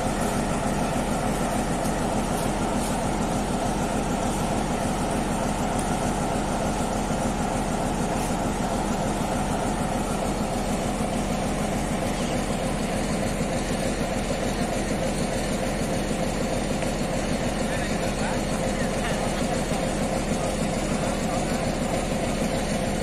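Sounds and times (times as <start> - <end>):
diesel locomotive engine idling: 0.0 - 23.0.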